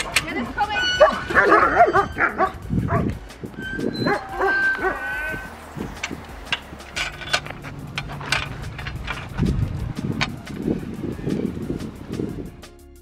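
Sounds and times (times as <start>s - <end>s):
dogs whining and yipping: 0.0s - 6.2s
scattered clicks: 4.7s - 10.7s.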